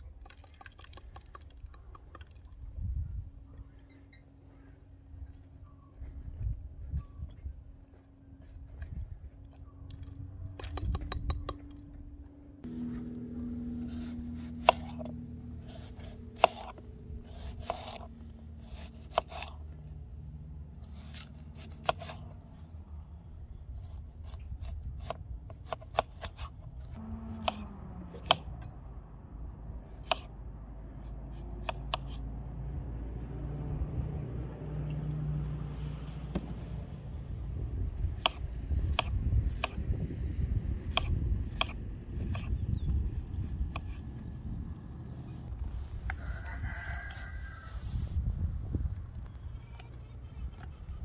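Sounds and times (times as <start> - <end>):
low steady hum: 0.0 - 36.1
knife slicing onion on cutting board: 13.8 - 19.6.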